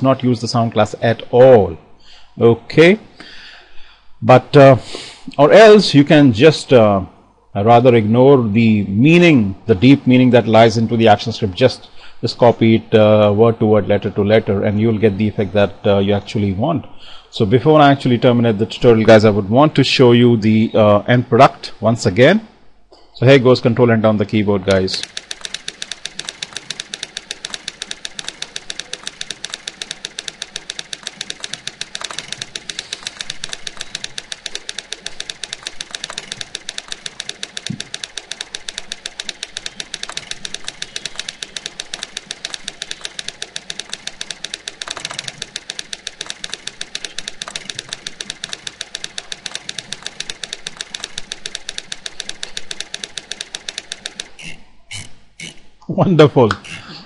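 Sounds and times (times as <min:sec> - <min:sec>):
typewriter keystroke clacks: 0:00.0 - 0:00.2, 0:24.6 - 0:54.6
typewriter carriage return: 0:24.7 - 0:54.6.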